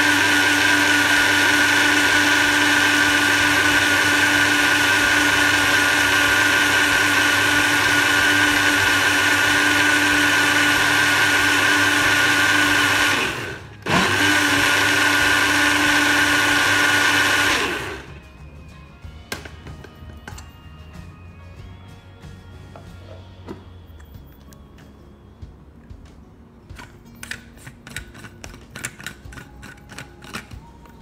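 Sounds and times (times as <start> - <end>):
blender motor running: 0.0 - 18.2.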